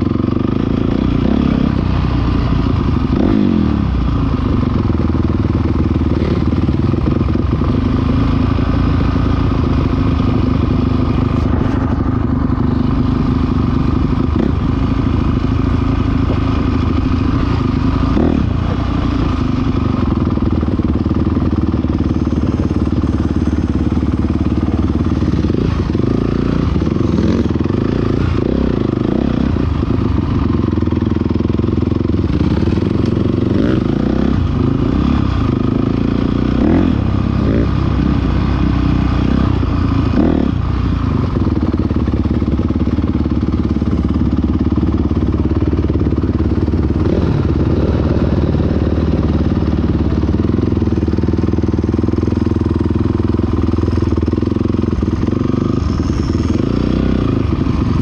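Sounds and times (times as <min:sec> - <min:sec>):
clatter: 0:00.0 - 0:58.0
dirt bike engine revving: 0:00.0 - 0:58.0.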